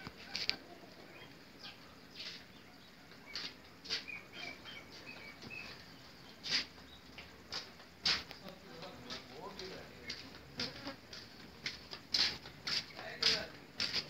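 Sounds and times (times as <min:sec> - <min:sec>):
sharp rustling: 0:02.1 - 0:08.5.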